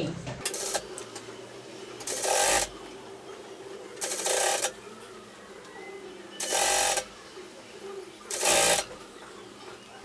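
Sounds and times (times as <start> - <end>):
sewing machine running: 2.0 - 2.7, 4.0 - 4.8, 6.4 - 7.1, 8.3 - 8.9.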